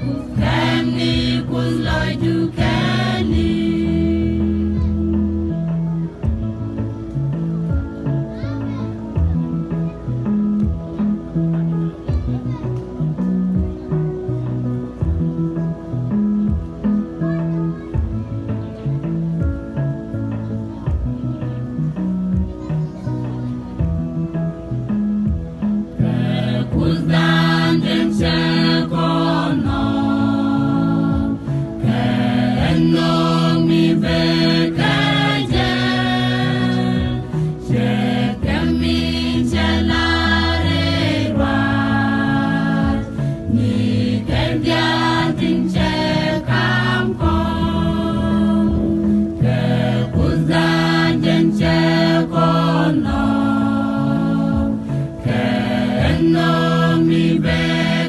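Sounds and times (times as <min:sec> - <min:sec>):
mixed choir singing: 0:00.0 - 0:04.8, 0:26.0 - 0:58.0.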